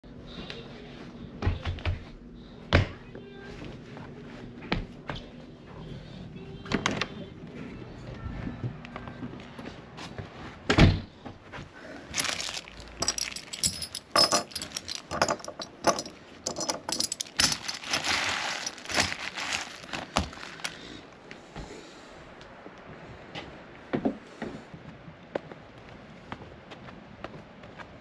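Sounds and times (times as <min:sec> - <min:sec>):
metal parts rattling: 0:12.1 - 0:20.8
plastic bags crinkling: 0:12.1 - 0:21.0.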